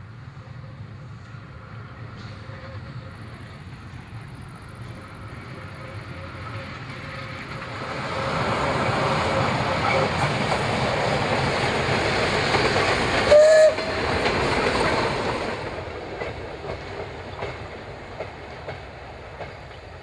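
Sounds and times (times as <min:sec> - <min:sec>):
steam train running past: 0:00.0 - 0:20.0
wheels clicking over rail joints: 0:06.5 - 0:20.0
steam whistle blast: 0:13.3 - 0:14.0.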